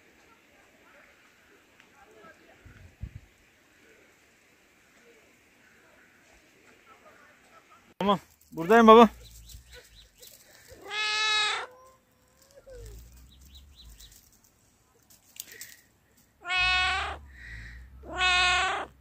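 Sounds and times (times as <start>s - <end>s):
cat meowing: 10.8s - 11.8s, 16.4s - 17.2s, 18.0s - 19.0s.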